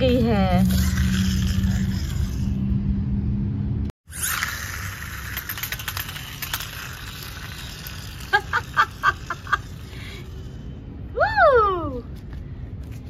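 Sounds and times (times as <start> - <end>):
toy car rattling on concrete: 0.6 - 2.7, 4.1 - 10.7.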